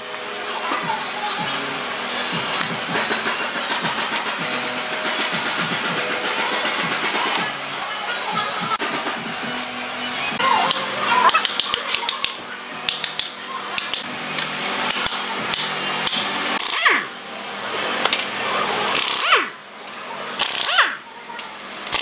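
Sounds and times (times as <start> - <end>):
pneumatic wrench bursts: 16.6 - 17.1, 18.9 - 19.6, 20.4 - 21.0.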